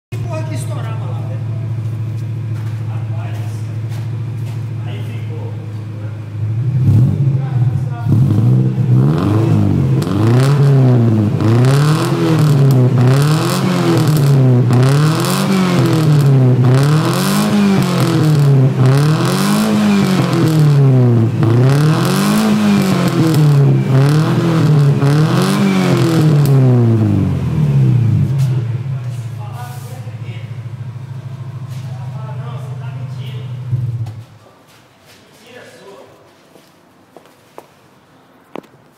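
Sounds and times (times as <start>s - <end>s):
car engine revving: 5.5s - 34.3s.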